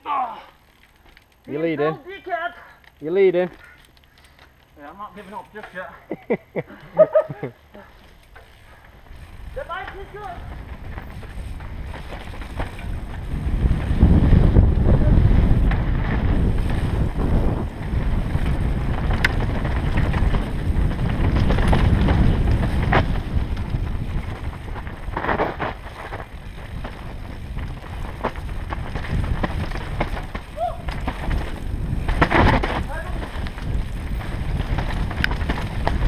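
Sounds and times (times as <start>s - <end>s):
bike clacking over bumps: 6.6s - 36.0s
tyres rumbling over dirt: 8.2s - 36.0s
wind buffeting microphone: 9.0s - 36.0s.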